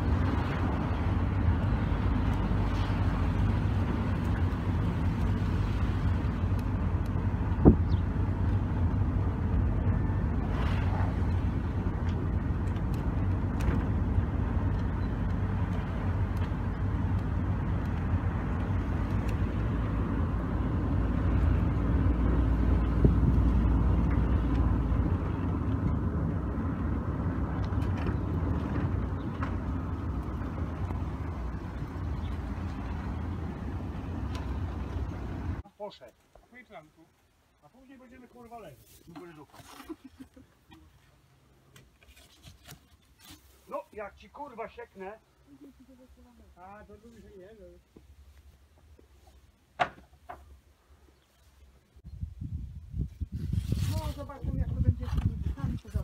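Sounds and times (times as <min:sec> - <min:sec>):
wind buffeting microphone: 0:00.0 - 0:35.6, 0:52.0 - 0:56.0.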